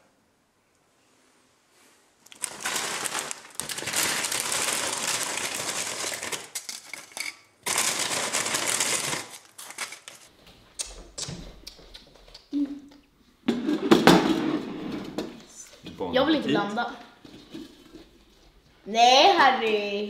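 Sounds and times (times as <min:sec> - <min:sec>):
chip bag crinkling: 0:02.2 - 0:10.3
chips rattling onto a plate: 0:02.3 - 0:10.3.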